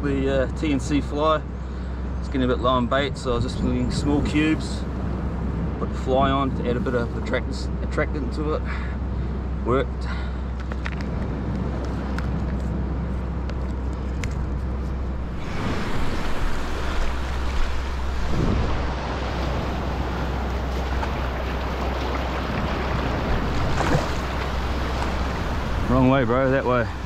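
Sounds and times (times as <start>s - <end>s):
wind buffeting microphone: 3.0s - 7.5s, 10.6s - 27.0s
sea water washing against rocks: 15.2s - 27.0s.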